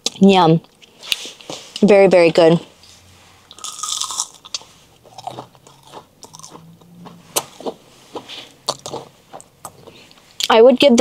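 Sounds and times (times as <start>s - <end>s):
crunching crispy fried chicken: 3.5s - 6.6s.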